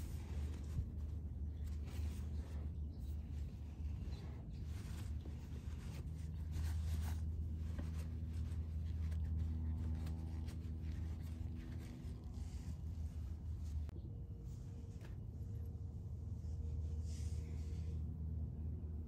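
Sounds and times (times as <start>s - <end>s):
towel rubbing on metal: 0.0s - 13.9s
steady low hum: 0.0s - 19.0s.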